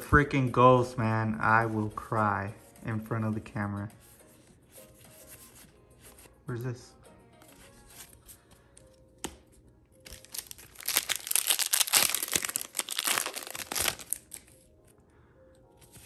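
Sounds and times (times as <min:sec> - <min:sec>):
foil wrapper tearing and crinkling: 0:10.1 - 0:14.6.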